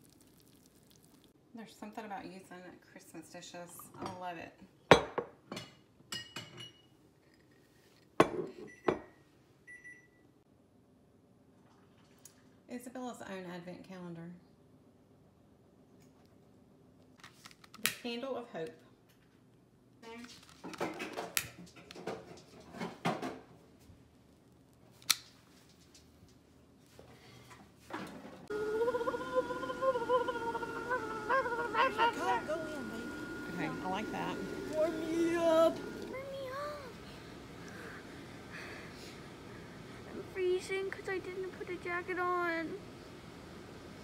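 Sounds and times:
lighter clicks and rustles: 25.0s - 25.4s.

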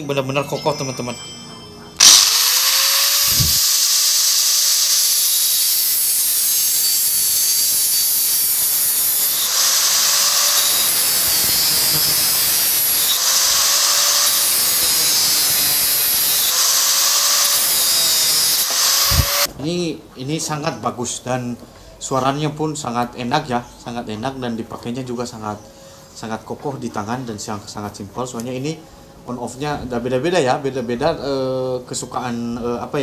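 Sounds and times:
angle grinder cutting steel: 2.0s - 19.5s.

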